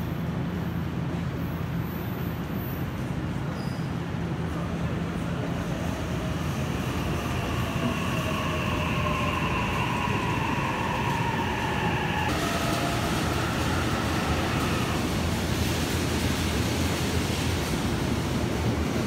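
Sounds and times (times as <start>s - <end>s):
electric train pulling out: 5.0s - 18.1s
electric train braking: 5.6s - 16.1s.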